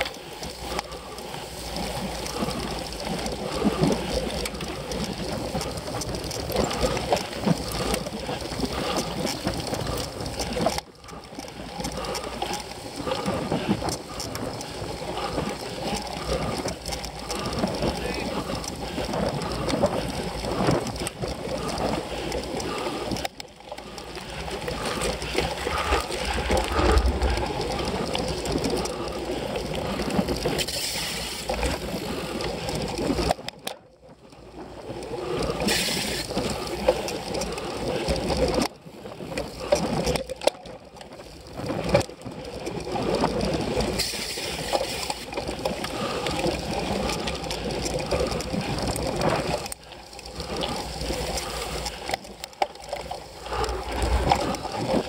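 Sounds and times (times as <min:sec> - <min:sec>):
bike rattling over bumpy ground: 0:00.0 - 0:55.0.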